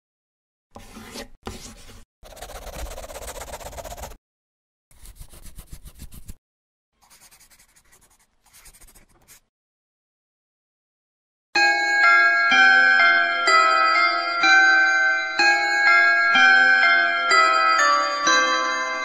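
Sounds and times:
pencil scratching on paper: 0.8 - 4.2, 4.9 - 6.4, 7.0 - 9.5.

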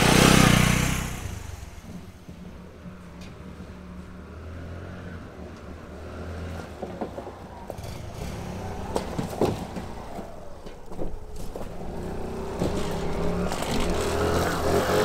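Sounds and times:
motorcycle knocking and rattling: 0.0 - 3.8, 8.8 - 15.0
motorcycle engine at low revs: 0.0 - 4.2, 7.7 - 15.0.

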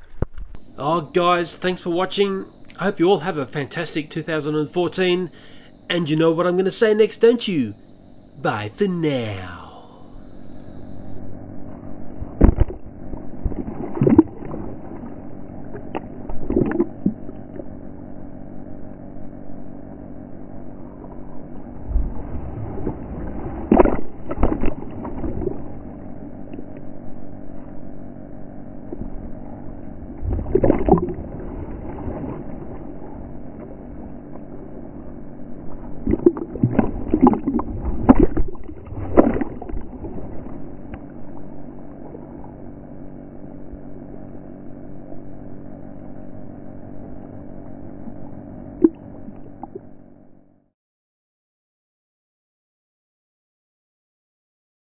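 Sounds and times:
muffled electric motor humming: 0.0 - 50.7
water slapping and splashing: 12.4 - 15.1, 22.2 - 25.7, 30.2 - 33.0, 36.0 - 40.7.

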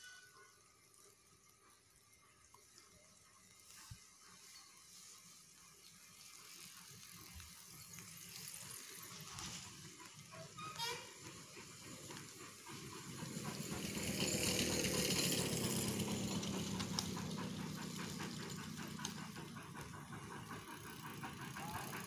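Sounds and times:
vehicle passing: 12.8 - 19.5.

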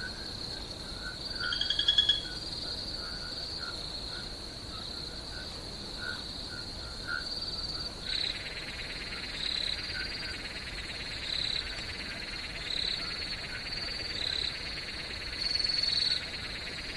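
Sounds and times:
cricket trill: 0.0 - 16.9
pulsing frog chorus: 0.0 - 16.9.

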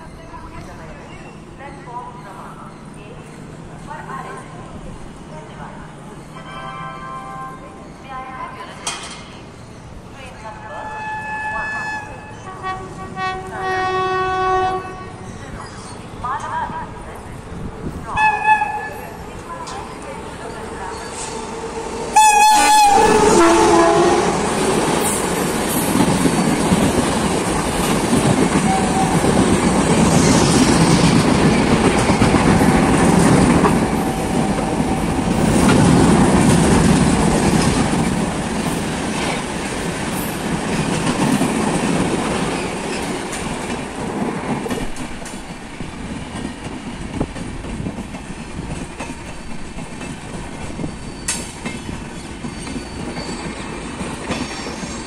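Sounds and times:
distant train rumble: 0.0 - 55.0
train wheels clattering over rails: 8.7 - 9.6, 23.8 - 55.0.

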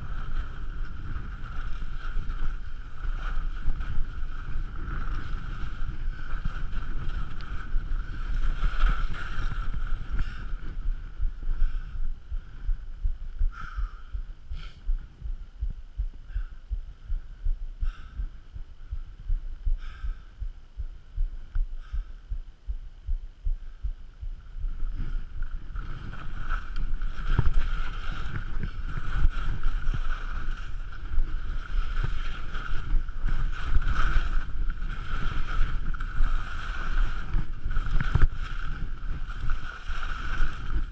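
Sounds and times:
skis scraping over snow: 0.0 - 10.8, 24.9 - 40.9
wind buffeting microphone: 0.0 - 22.1, 22.7 - 40.9.

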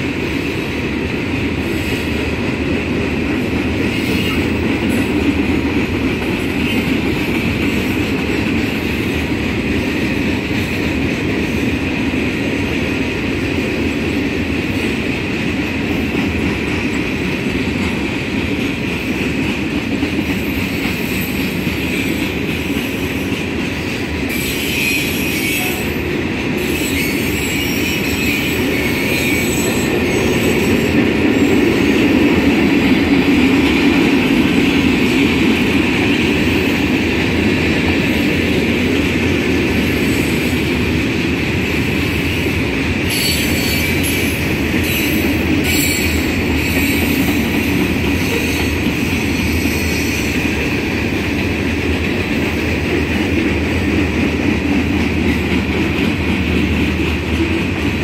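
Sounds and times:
train wheels rumbling on rails: 0.0 - 58.0
high wheel squeal: 26.6 - 31.5, 43.1 - 47.4.

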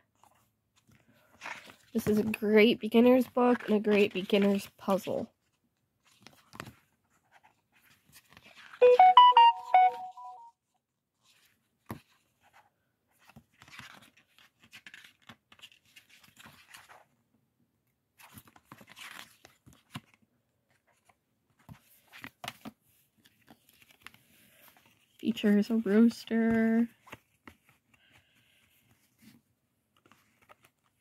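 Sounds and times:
cardboard puzzle pieces handled: 0.0 - 8.9, 11.2 - 17.1, 18.2 - 31.0
short stepped-note tune: 8.8 - 10.5.

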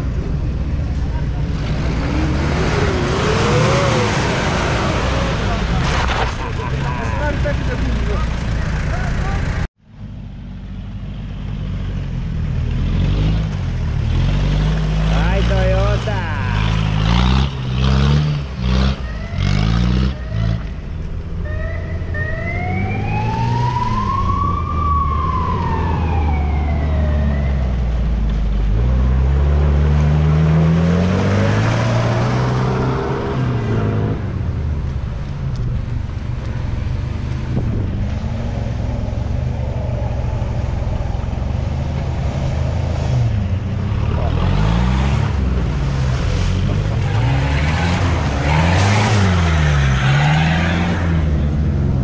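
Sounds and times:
off-road engines revving: 0.0 - 9.7, 11.5 - 52.0
siren wail: 19.0 - 20.6, 21.4 - 28.1, 38.8 - 42.3.

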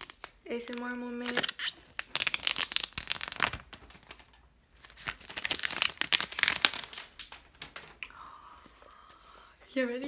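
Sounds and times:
plastic wrap crinkling: 0.0 - 8.0.

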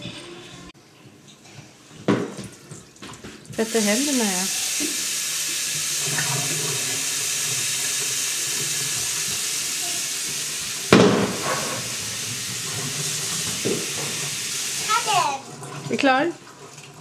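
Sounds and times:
tap water running into basin: 2.1 - 17.0.

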